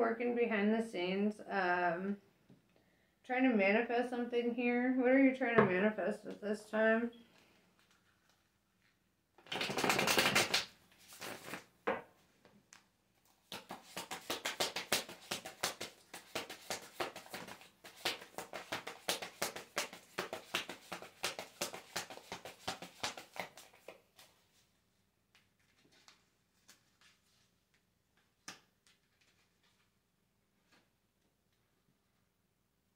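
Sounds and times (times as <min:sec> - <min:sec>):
cards being shuffled: 0:09.4 - 0:11.7, 0:13.4 - 0:24.3, 0:25.4 - 0:27.5.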